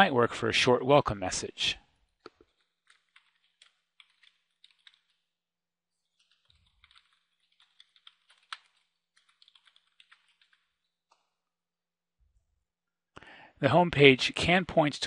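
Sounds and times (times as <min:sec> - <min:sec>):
faint keyboard typing: 0:02.2 - 0:05.3, 0:05.9 - 0:11.4.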